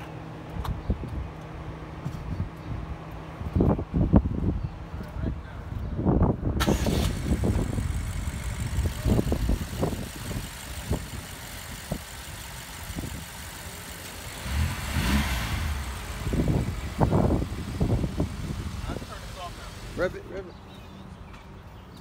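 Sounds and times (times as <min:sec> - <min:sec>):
car engine idling: 0:06.7 - 0:20.3.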